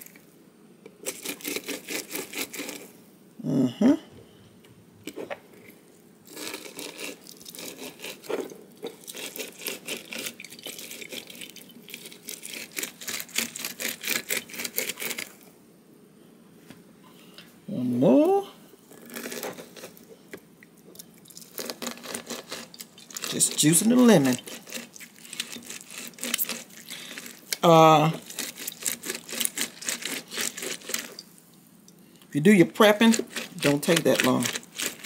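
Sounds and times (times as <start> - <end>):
lemon rubbing on citrus juicer: 21.8 - 31.2, 32.4 - 35.0.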